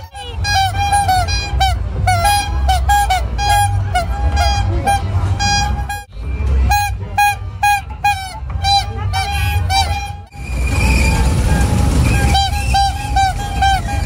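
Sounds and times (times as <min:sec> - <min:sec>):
toy horn short beeps: 0:00.0 - 0:10.3
low rumble from ride: 0:00.0 - 0:14.0.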